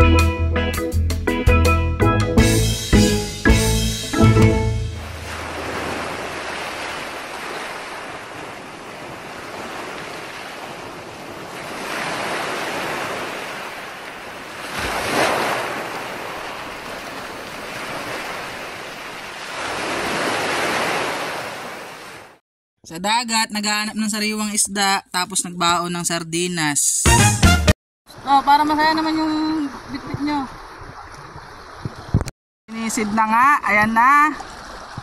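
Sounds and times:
sea waves washing onto shore: 5.0s - 22.4s.

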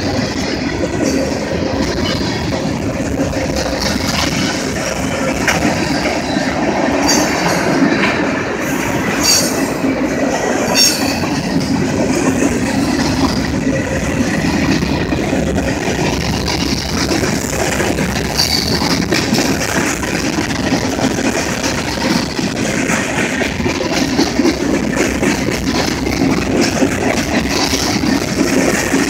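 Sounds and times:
train wheels rumbling over rail joints: 0.0s - 29.0s
high wheel squeals: 9.1s - 9.8s.

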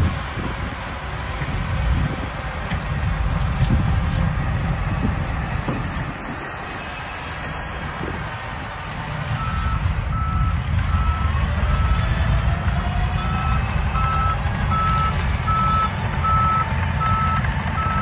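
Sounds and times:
bulldozer engine rumbling: 0.0s - 18.0s
reversing alarm beeping: 9.4s - 12.1s, 13.2s - 18.0s.

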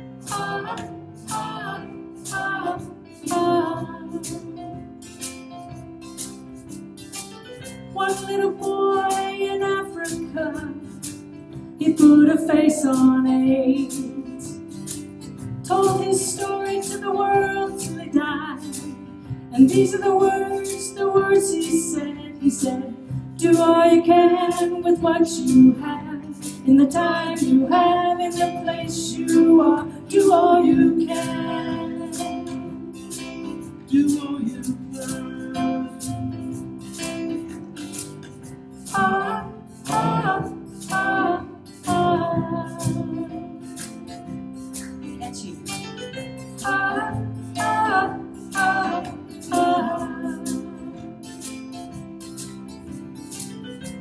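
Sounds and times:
woman singing: 0.0s - 4.7s, 7.9s - 11.1s, 11.8s - 14.7s, 15.6s - 36.7s, 38.8s - 44.2s, 45.1s - 45.8s, 46.6s - 51.3s
strummed acoustic guitar: 0.0s - 54.0s.

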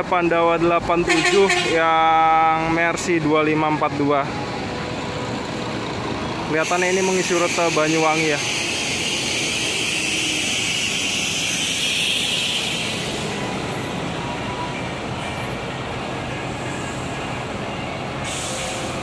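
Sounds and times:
coach engine running: 3.9s - 6.6s
air hissing: 18.2s - 19.0s.

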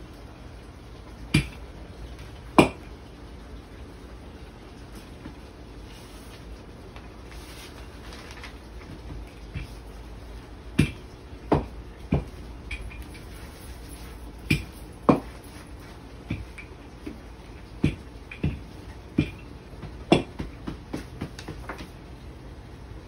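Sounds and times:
dough thumping on wooden board: 10.7s - 12.4s, 14.5s - 15.4s, 16.2s - 17.2s, 17.8s - 21.9s.

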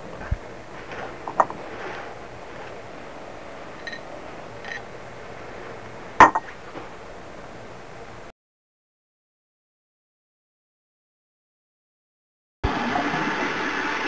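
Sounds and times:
glass knocking on countertop: 1.3s - 1.6s, 6.2s - 6.5s.

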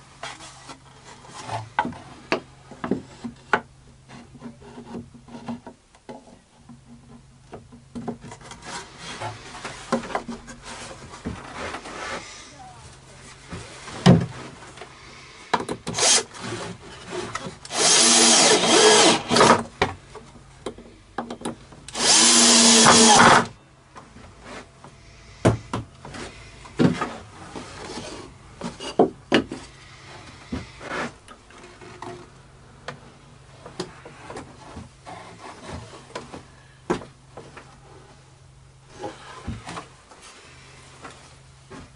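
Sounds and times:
cordless drill driving screws: 15.9s - 16.5s, 17.6s - 19.6s, 21.9s - 23.5s.

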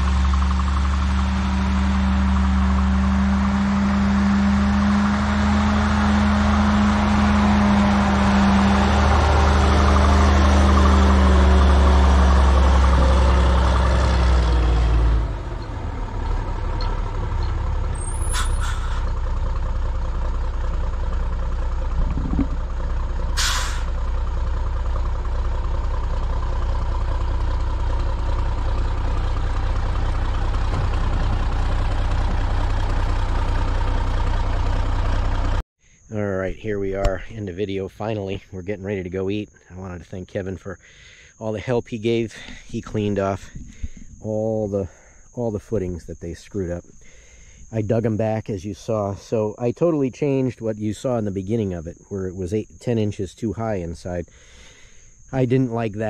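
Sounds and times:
diesel engine running: 0.0s - 56.0s
brief hiss: 23.4s - 23.9s.

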